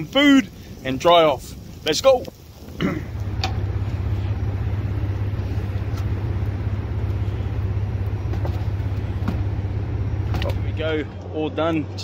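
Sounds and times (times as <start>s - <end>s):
vehicle engine idling: 2.8s - 12.0s.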